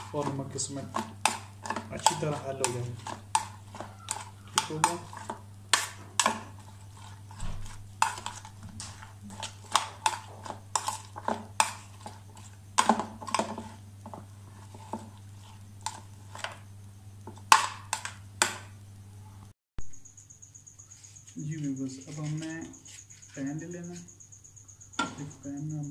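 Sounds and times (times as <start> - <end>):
spoon scraping plastic bowl: 0.0 - 16.6, 22.0 - 24.1
steady low hum: 0.0 - 25.9.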